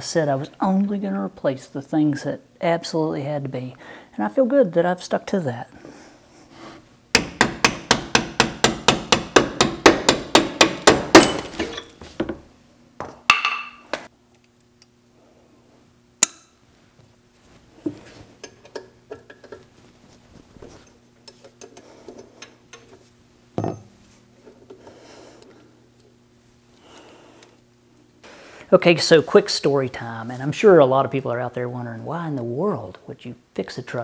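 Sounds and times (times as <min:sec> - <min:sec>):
low steady hum: 0:00.0 - 0:34.0
hammer striking steel: 0:07.2 - 0:11.8.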